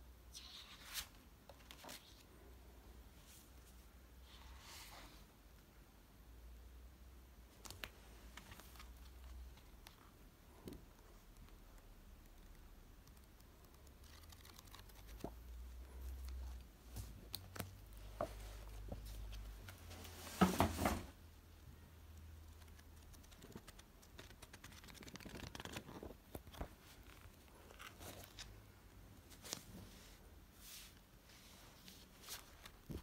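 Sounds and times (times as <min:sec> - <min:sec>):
paper rustling: 0:10.9 - 0:20.8, 0:22.5 - 0:28.6, 0:30.7 - 0:33.0.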